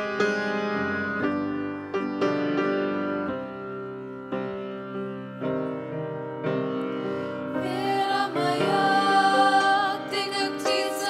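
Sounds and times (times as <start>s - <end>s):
grand piano chords: 0.0s - 11.0s
female voices singing wordless notes: 7.5s - 11.0s.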